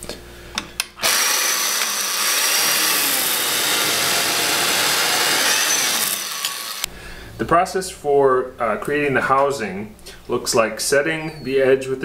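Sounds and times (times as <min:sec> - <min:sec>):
chain mortiser cutting timber: 0:01.0 - 0:06.9.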